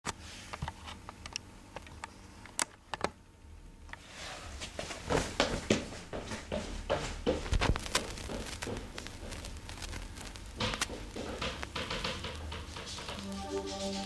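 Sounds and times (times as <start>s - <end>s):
footsteps on wooden floor: 4.6s - 9.5s, 10.6s - 14.0s.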